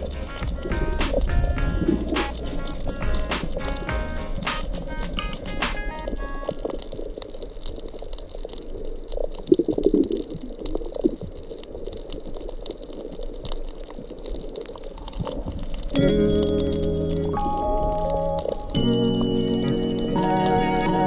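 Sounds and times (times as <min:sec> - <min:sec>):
music: 0:00.0 - 0:06.6, 0:16.0 - 0:21.0
water drips and ticks: 0:00.0 - 0:21.0.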